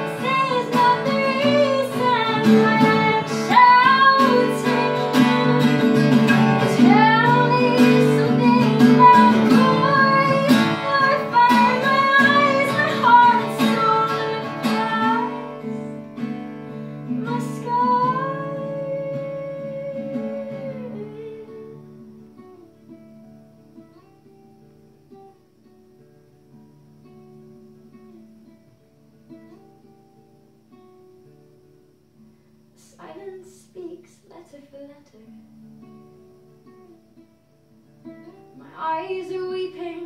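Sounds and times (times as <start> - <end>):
woman singing: 0.0 - 16.1, 17.0 - 21.8, 32.8 - 35.5, 38.6 - 40.0
acoustic guitar strumming and picking: 0.0 - 40.0.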